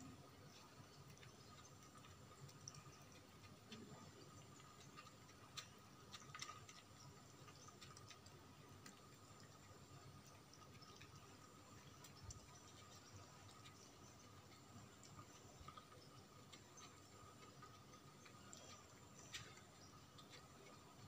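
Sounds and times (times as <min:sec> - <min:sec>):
cats chewing food: 0:00.0 - 0:21.0.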